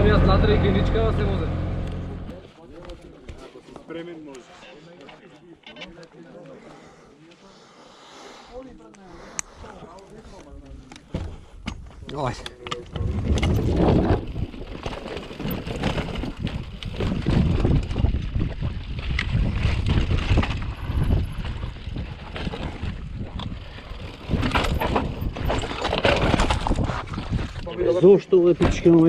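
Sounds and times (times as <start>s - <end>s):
bike tyres and frame rattling: 12.2s - 27.6s
wind rushing over microphone: 12.9s - 14.7s.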